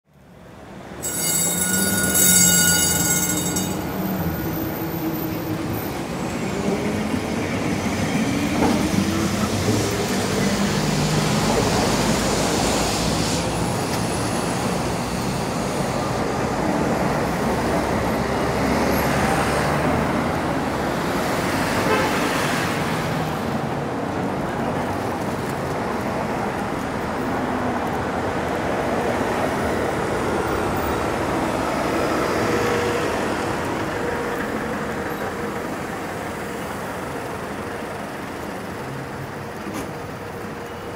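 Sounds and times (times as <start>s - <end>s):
tram rumbling on rails: 0.1s - 40.9s
tram wheel squeal: 0.7s - 19.8s, 28.9s - 40.9s.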